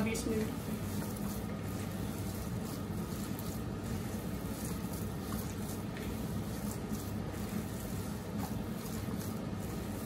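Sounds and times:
squishing of kneaded meat: 0:00.0 - 0:10.0
steady low hum: 0:00.0 - 0:10.0.

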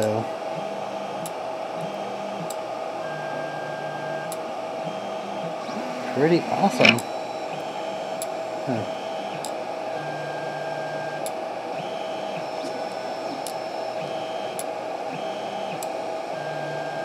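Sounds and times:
fan hum: 0:00.0 - 0:17.0
stepper motors whining: 0:00.0 - 0:17.0.

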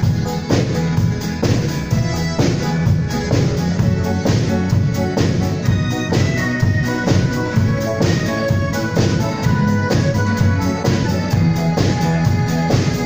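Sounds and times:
live band playing: 0:00.0 - 0:13.0.

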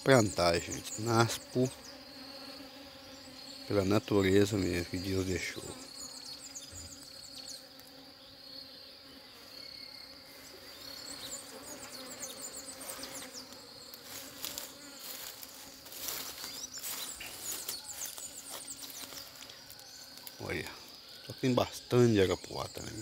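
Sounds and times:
bees buzzing: 0:00.0 - 0:23.0
crackling rustles: 0:12.8 - 0:20.6.

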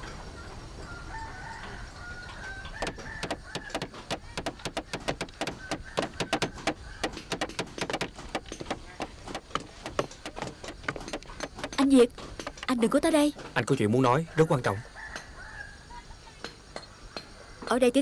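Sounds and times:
birds chirping faintly: 0:00.0 - 0:18.0
rapid sharp clicks: 0:02.8 - 0:12.8.

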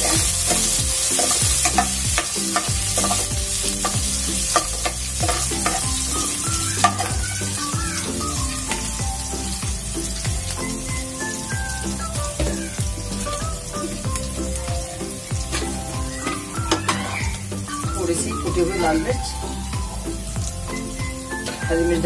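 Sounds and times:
ladle clicking against pan: 0:00.0 - 0:07.2
ladle stirring and scraping: 0:00.0 - 0:10.7, 0:15.4 - 0:17.4
spices sizzling in hot oil: 0:00.0 - 0:22.0.

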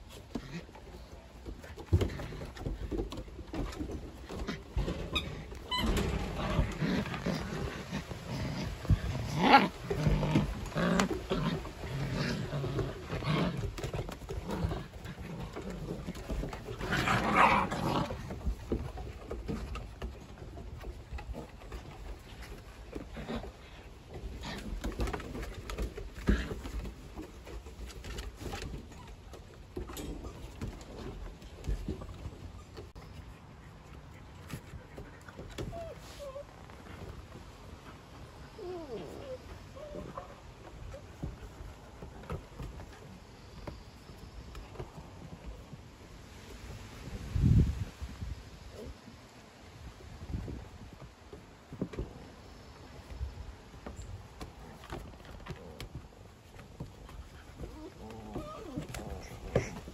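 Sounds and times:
puppies growling: 0:00.1 - 0:43.1, 0:54.6 - 0:59.9
puppy grunts: 0:57.6 - 0:59.9.

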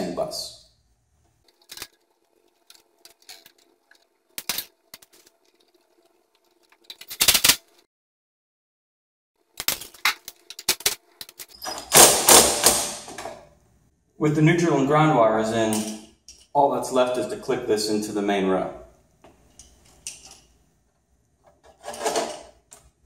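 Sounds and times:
clicks and rattles of handling: 0:01.2 - 0:07.8, 0:21.4 - 0:23.0.

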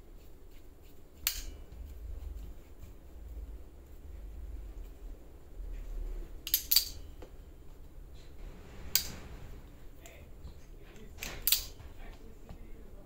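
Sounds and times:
hand tool clicks and snaps: 0:01.2 - 0:01.6, 0:06.5 - 0:07.0, 0:11.0 - 0:11.8.

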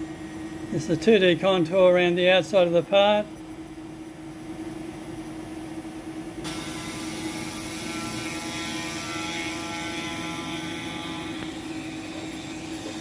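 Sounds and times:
end mill cutting wood: 0:06.4 - 0:13.0
router spindle humming: 0:06.4 - 0:13.0.

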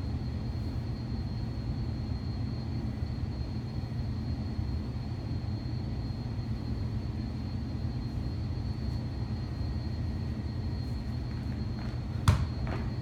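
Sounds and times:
low room rumble: 0:00.0 - 0:13.0
ball thudding: 0:11.8 - 0:13.0.

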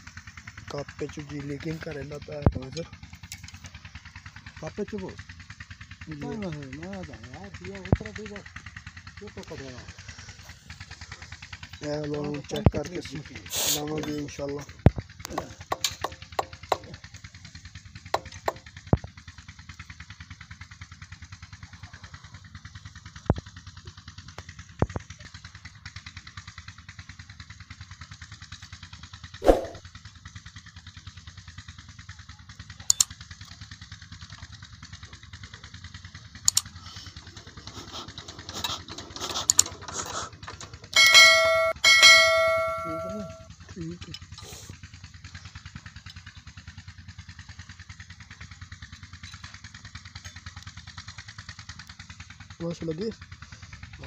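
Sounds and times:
engine chugging: 0:00.0 - 0:54.0
metal tools clinking: 0:37.3 - 0:43.4
loud sustained ringing tone: 0:40.9 - 0:43.5.

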